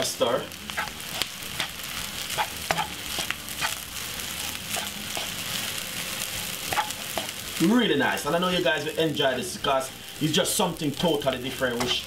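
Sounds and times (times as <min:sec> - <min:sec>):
rice sizzling in frying pan: 0:00.0 - 0:12.0
spatula scraping and tapping pan: 0:00.7 - 0:03.8, 0:04.7 - 0:05.5, 0:06.7 - 0:07.4, 0:11.7 - 0:12.0.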